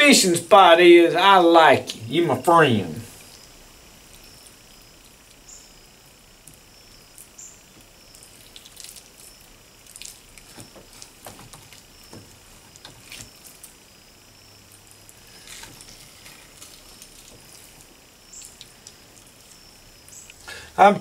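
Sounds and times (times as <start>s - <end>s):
wet squishing of fish fillets: 8.2s - 13.7s.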